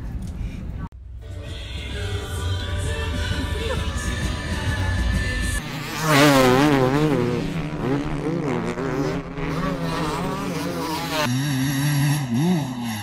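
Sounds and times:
motocross bike engine revving: 4.1 - 13.0.

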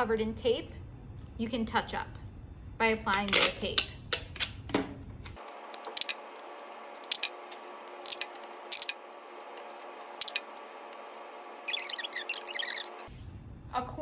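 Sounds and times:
crinkly squishes of tape: 5.3 - 11.1.

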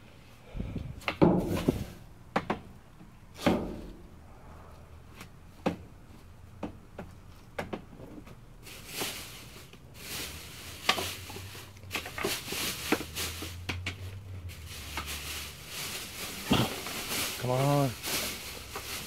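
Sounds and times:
sharp knocks in metal dumpster: 1.2 - 1.7, 3.4 - 4.1
plastic bags rustling: 8.6 - 19.0.

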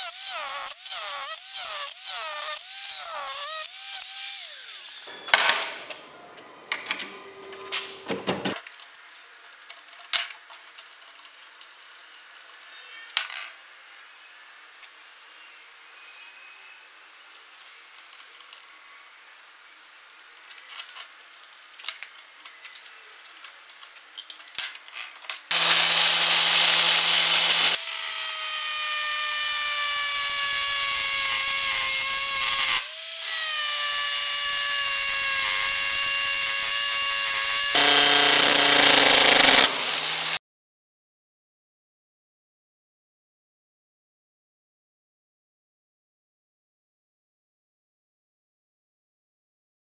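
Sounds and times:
angle grinder motor whining: 25.5 - 40.4.

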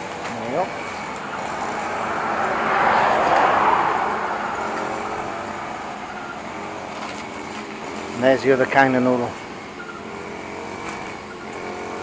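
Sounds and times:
vehicle passing: 0.0 - 9.7.

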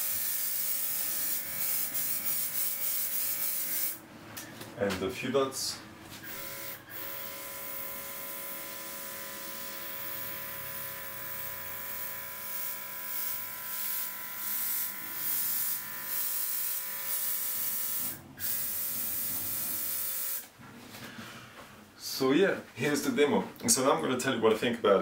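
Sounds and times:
mini compressor whining: 6.2 - 20.4.

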